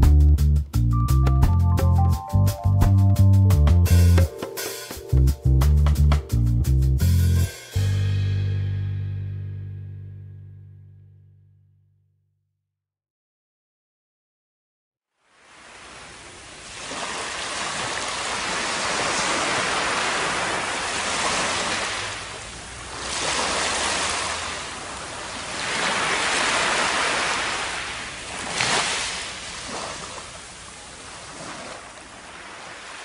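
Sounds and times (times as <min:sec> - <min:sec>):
surf washing over sand: 0:15.3 - 0:33.0.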